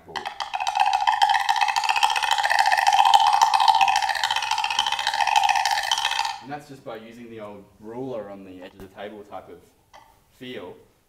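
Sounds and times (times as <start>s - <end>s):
woodblock rattle roll: 0.0s - 6.5s.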